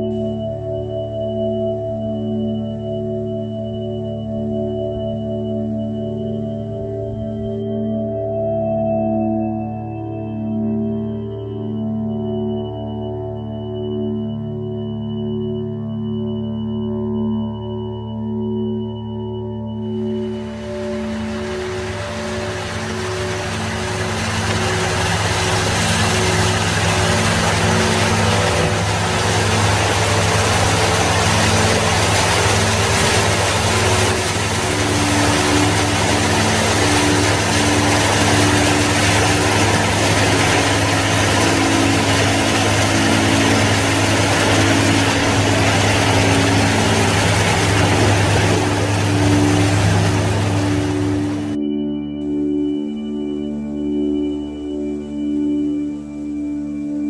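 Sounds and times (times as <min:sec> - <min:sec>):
boat engine humming: 0:00.0 - 0:03.2, 0:19.7 - 0:52.8
singing bowl tones: 0:00.0 - 0:57.0
soft ambient music: 0:00.0 - 0:57.0
churned water rushing: 0:20.2 - 0:51.6.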